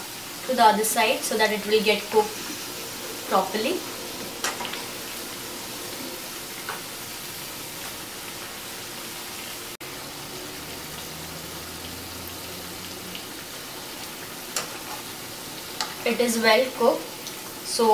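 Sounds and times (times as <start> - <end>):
hot oil sizzling: 0.0 - 17.9
low hum: 9.8 - 14.6.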